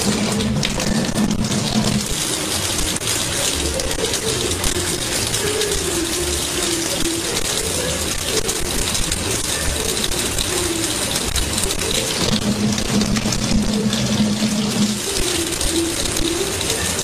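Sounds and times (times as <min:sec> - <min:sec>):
faucet water splashing into sink: 0:00.0 - 0:17.0.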